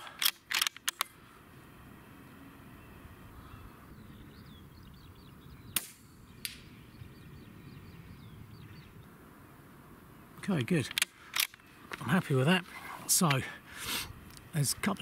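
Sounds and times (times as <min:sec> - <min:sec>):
rifle shot crack: 0:05.8 - 0:06.6.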